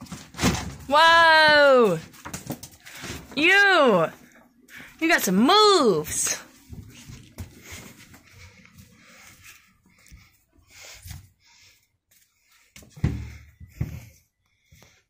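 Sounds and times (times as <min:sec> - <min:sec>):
heavy thuds: 0:12.9 - 0:14.1.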